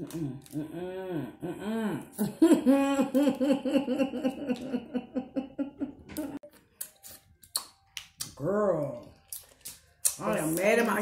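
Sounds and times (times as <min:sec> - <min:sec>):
woman laughing hard: 0:01.6 - 0:06.4.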